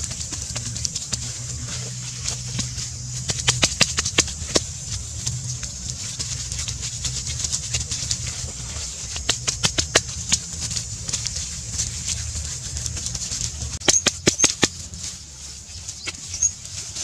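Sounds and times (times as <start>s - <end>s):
hands slapping wet mud: 0.0s - 17.0s.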